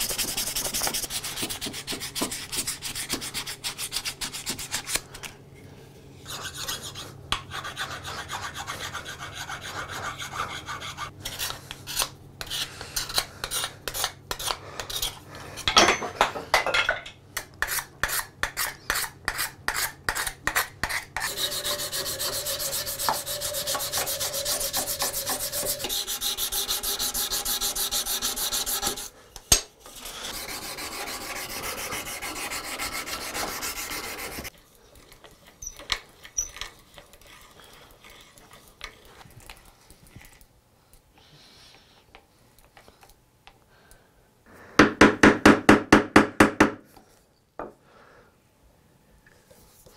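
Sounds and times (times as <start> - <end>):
sandpaper rubbing wood: 0.0 - 4.8, 21.2 - 29.1, 29.9 - 34.5
scraping strokes: 17.6 - 29.2.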